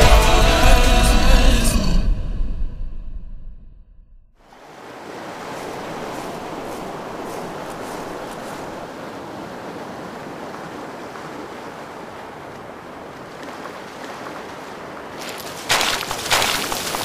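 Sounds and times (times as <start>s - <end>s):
waves washing onto pebble beach: 4.4s - 17.0s.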